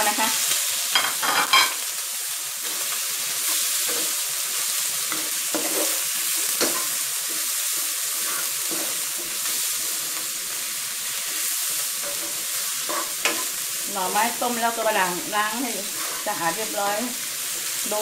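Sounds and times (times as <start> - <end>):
frying sizzle: 0.0 - 18.0
spatula scraping in wok: 2.6 - 13.7, 15.5 - 17.9.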